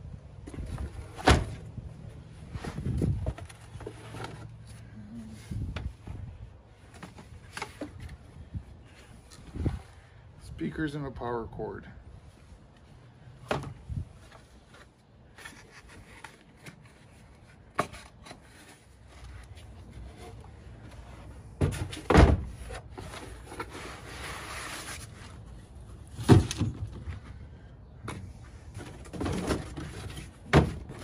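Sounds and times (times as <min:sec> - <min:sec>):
boxes scraping: 0:02.4 - 0:05.6, 0:14.2 - 0:27.4, 0:28.1 - 0:31.0.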